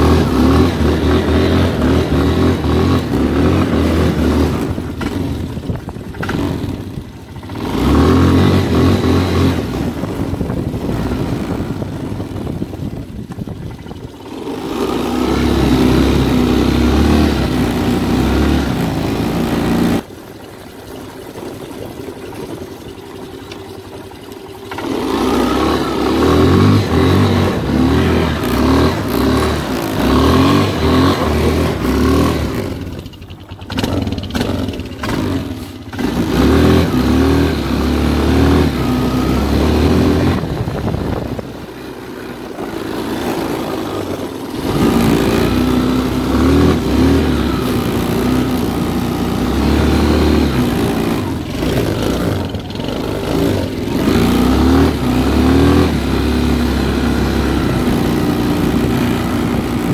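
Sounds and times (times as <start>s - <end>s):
atv engine revving: 0.0s - 59.9s.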